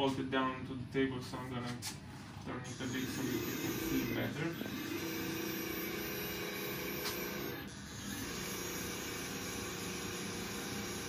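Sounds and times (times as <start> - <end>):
servo motor whine: 2.7 - 11.0.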